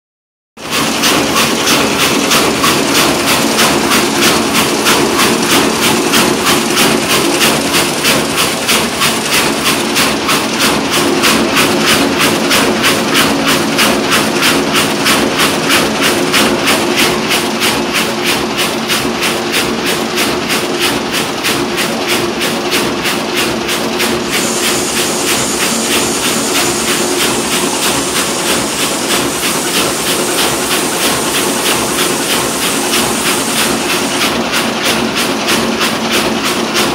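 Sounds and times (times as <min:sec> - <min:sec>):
weaving loom clattering: 0:00.6 - 0:36.9.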